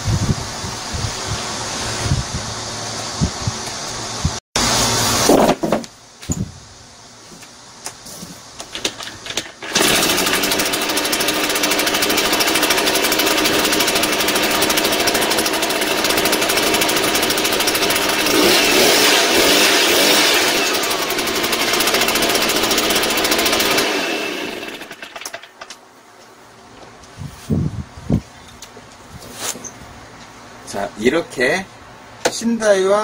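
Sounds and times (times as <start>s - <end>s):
leaf blower engine running: 8.7s - 25.7s.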